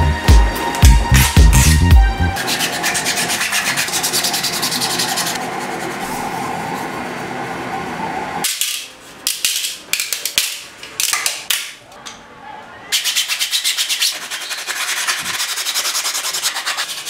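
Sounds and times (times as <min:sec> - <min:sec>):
sandpaper scraping plastic: 0:02.4 - 0:06.3, 0:12.9 - 0:17.0.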